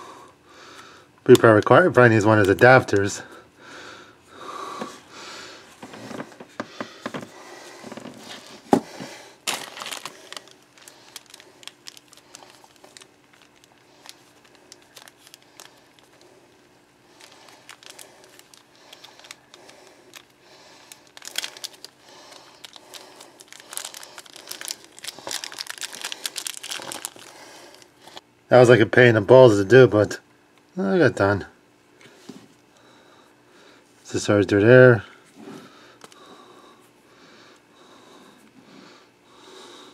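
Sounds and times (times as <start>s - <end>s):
plastic packaging crinkling: 9.4s - 28.2s.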